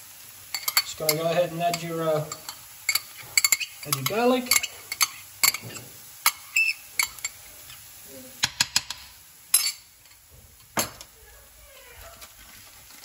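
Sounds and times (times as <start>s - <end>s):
faint sizzle: 0.0s - 13.0s
metal utensil tapping frying pan: 0.5s - 7.4s, 8.4s - 10.2s.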